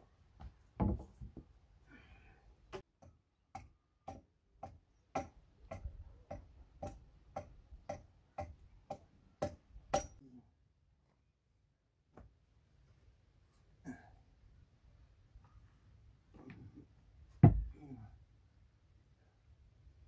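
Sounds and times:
sharp wooden knocks: 0:17.4 - 0:17.7
heavier thumps: 0:17.4 - 0:17.8.

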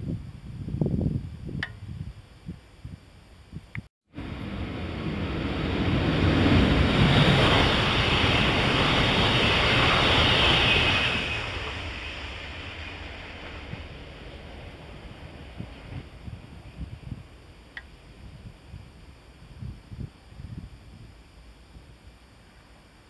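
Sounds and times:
train rushing past: 0:04.2 - 0:17.5.

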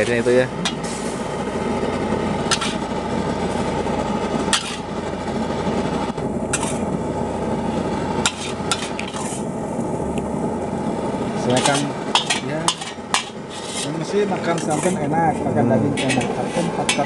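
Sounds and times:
burner rushing noise: 0:00.0 - 0:17.0
metal spatula scraping wok: 0:02.5 - 0:02.9, 0:04.5 - 0:04.9, 0:06.5 - 0:06.9, 0:08.2 - 0:09.5, 0:11.4 - 0:17.0.

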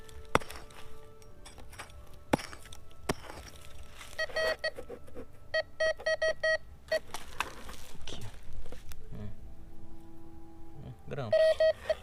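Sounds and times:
hand scraping dry dirt: 0:00.0 - 0:05.4, 0:07.0 - 0:09.0
metal detector beeping: 0:04.1 - 0:04.8, 0:05.6 - 0:07.0, 0:11.3 - 0:12.0.

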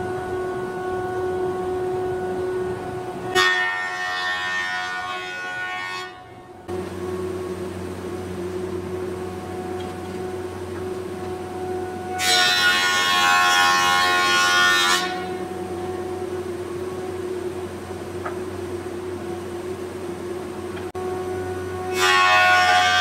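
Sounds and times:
high cutting whine: 0:06.2 - 0:22.0
planer running hum: 0:06.7 - 0:22.0.

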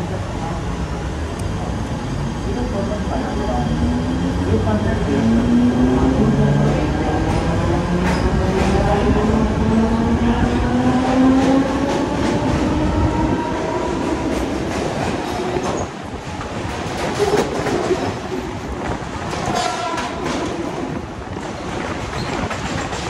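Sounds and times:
train wheels clattering over rail joints: 0:14.0 - 0:23.0.

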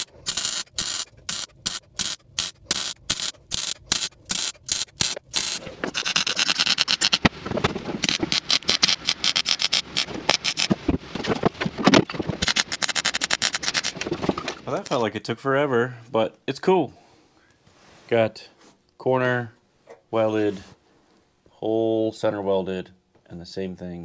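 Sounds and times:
welding arc crackling: 0:00.0 - 0:07.3, 0:08.0 - 0:10.7, 0:12.4 - 0:14.0.

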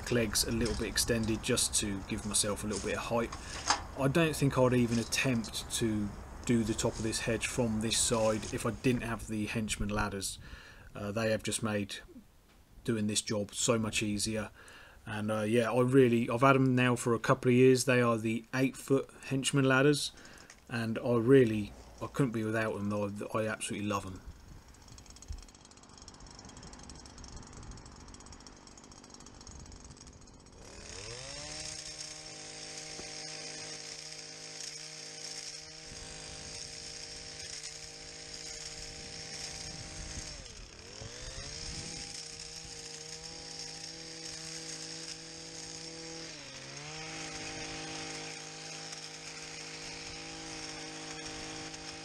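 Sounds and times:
petrol hedge trimmer engine revving: 0:00.0 - 0:09.5, 0:20.1 - 0:23.2, 0:23.9 - 0:52.0
hedge trimmer blades cutting hedge: 0:00.0 - 0:10.8, 0:15.6 - 0:52.0.

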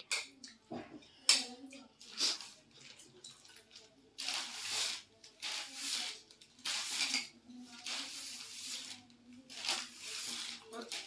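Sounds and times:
spoons scraping plates: 0:04.2 - 0:11.0.

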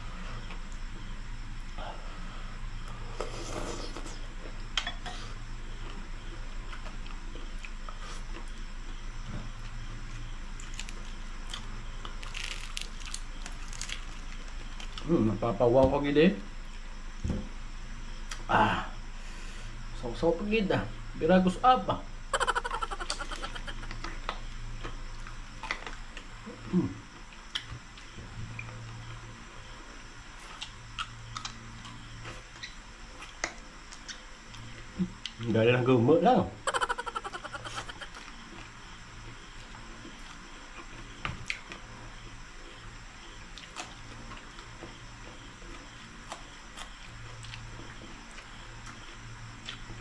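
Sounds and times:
faint low hum: 0:00.0 - 0:50.0
chewing and crunching: 0:05.7 - 0:15.1, 0:22.4 - 0:29.5, 0:30.4 - 0:35.5, 0:36.7 - 0:50.0
crisp skin crackling: 0:12.2 - 0:14.1.

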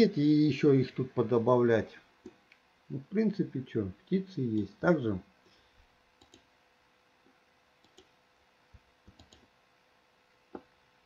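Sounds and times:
computer mouse clicks: 0:06.2 - 0:06.5, 0:07.8 - 0:08.2, 0:09.0 - 0:09.5.

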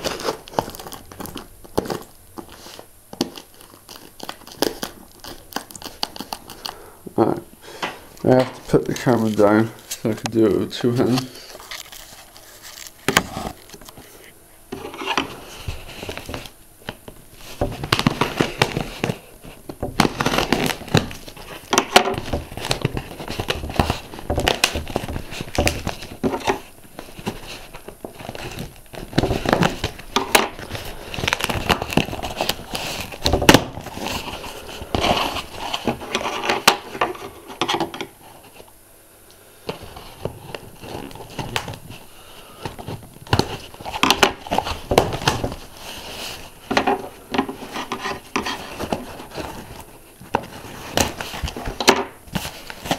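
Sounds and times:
cardboard box tearing and crinkling: 0:00.0 - 0:06.6, 0:11.4 - 0:13.8, 0:17.4 - 0:19.3, 0:19.9 - 0:37.4, 0:42.8 - 0:52.9.

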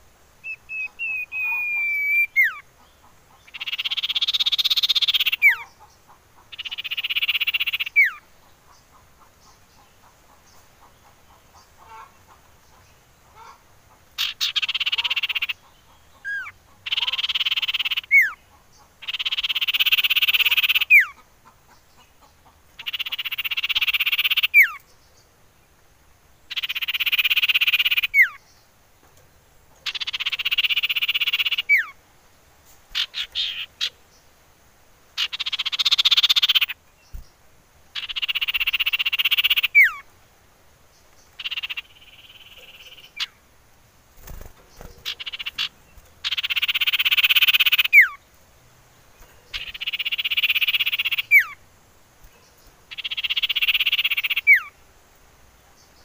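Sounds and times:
bird rattling trills: 0:44.1 - 0:48.2.

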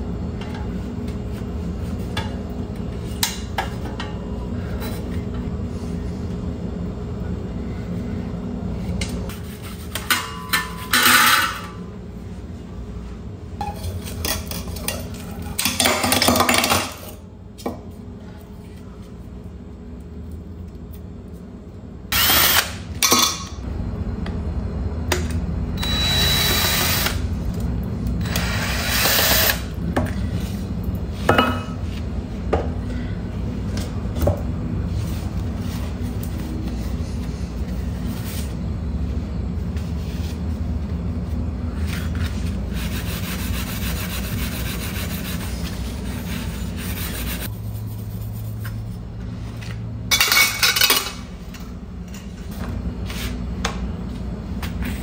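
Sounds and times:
steady low hum: 0:00.0 - 0:55.0
cloth scrubbing metal fan: 0:34.8 - 0:49.7.

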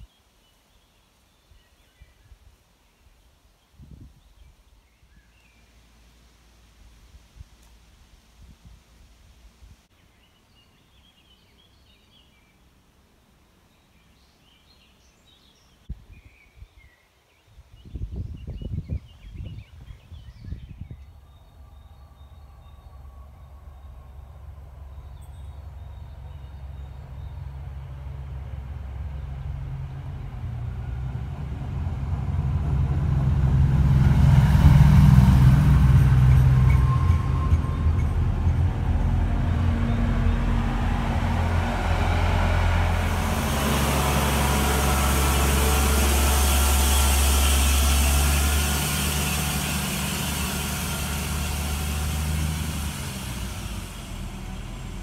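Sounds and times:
diesel locomotive engine drone: 0:20.2 - 0:55.0
train rushing noise: 0:21.2 - 0:55.0.

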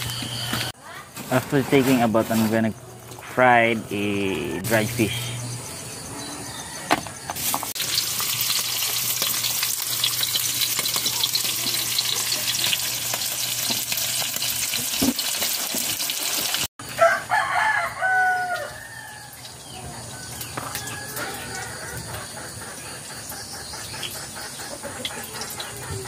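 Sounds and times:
rooster crowing: 0:05.9 - 0:07.6, 0:16.8 - 0:22.3
fish sizzling in a wok: 0:07.3 - 0:21.6.

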